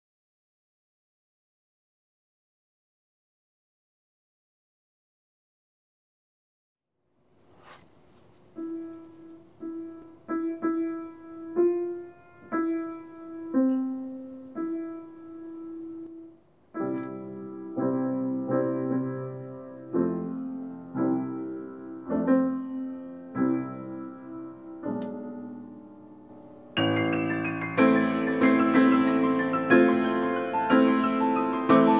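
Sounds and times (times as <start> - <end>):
grand piano playing: 8.4 - 31.9.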